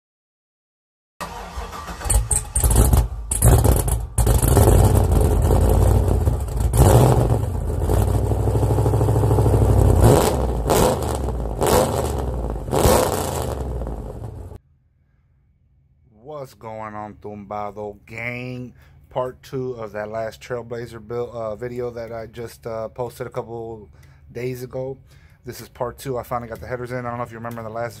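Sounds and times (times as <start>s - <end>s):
car engine revving: 1.2s - 14.6s.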